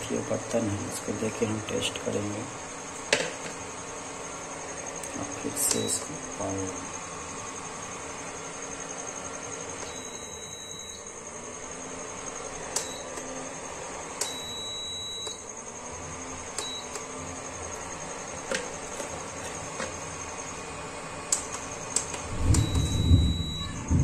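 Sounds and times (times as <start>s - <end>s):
high-pitched whine: 0.0s - 24.0s
cooktop beeping: 8.4s - 11.3s, 14.2s - 15.6s, 21.2s - 24.0s.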